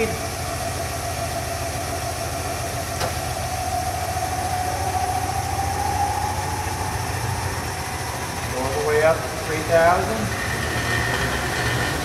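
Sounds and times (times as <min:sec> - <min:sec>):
lathe whining: 0:00.0 - 0:12.0.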